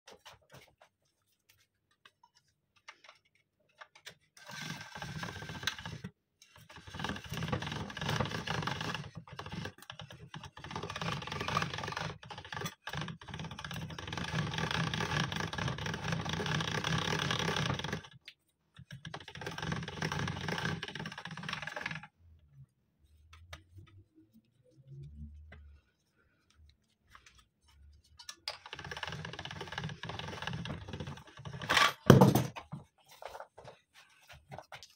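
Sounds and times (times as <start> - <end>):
pasta machine cranking: 4.4 - 18.2, 18.9 - 22.1, 28.5 - 32.2.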